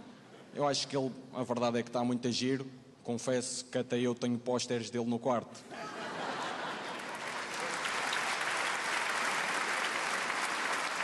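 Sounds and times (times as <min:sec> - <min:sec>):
audience laughing: 0:05.7 - 0:07.9
audience applauding: 0:06.5 - 0:11.0.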